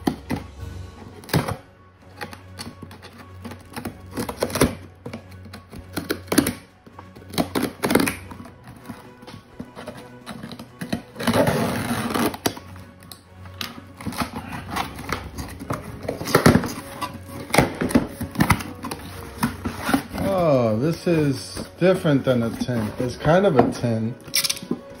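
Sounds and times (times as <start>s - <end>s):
background music: 0.0s - 25.0s
tape ripping: 1.2s - 23.6s
scissors snipping tape: 2.2s - 8.5s.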